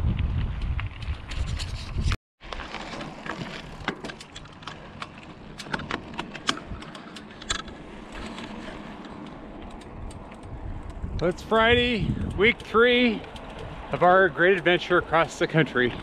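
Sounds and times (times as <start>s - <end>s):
road and wind noise: 0.0s - 16.0s
bike rattling clicks: 2.9s - 14.8s.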